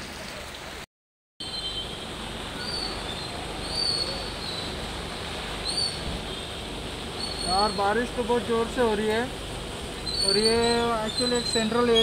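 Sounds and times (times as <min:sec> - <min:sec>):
heavy rain hissing: 0:00.0 - 0:12.0
high bird chirps: 0:10.0 - 0:12.0.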